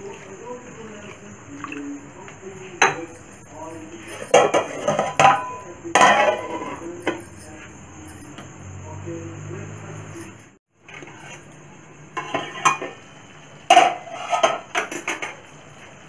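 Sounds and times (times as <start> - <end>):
sharp metal clinks: 2.6 - 9.0, 9.6 - 10.6
metal plate lid clanking: 4.2 - 6.9, 12.2 - 13.0, 13.7 - 15.5
metal spoon clanking in pan: 4.3 - 7.2.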